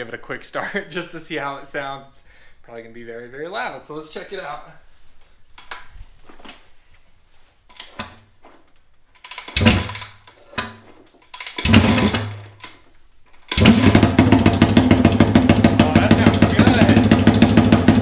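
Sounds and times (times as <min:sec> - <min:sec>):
person talking: 0:00.0 - 0:04.8, 0:15.8 - 0:17.2
motorcycle engine sputtering: 0:09.4 - 0:10.2, 0:11.5 - 0:12.5, 0:13.5 - 0:18.0
loud motorcycle engine running: 0:11.6 - 0:12.4, 0:13.6 - 0:18.0.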